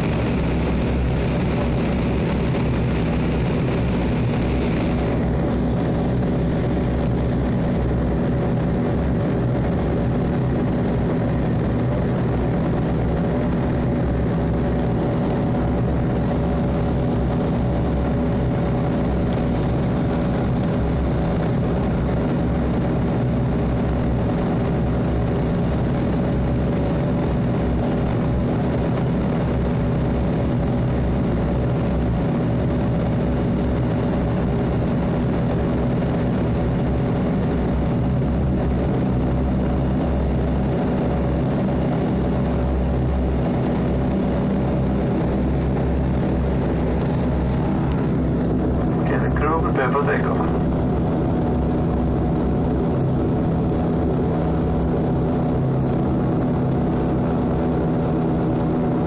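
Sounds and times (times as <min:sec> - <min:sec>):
turboprop engine droning: 0:00.0 - 0:59.0.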